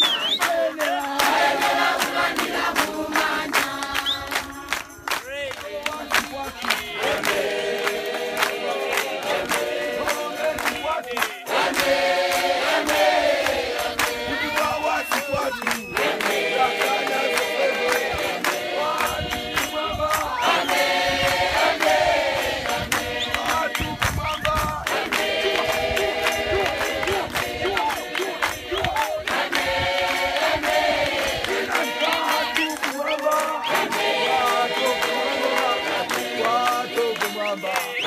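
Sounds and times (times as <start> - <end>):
crowd singing a hymn: 0.0 - 38.0
hand clapping: 0.0 - 38.0.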